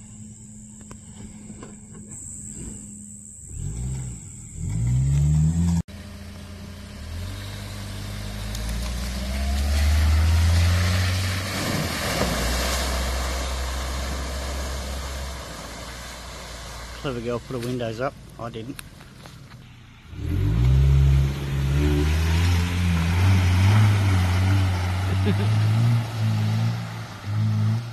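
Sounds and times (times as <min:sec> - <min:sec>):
car engine revving: 0:00.0 - 0:17.2, 0:19.8 - 0:27.9
tyres splashing through mud: 0:07.0 - 0:19.5, 0:20.2 - 0:27.9.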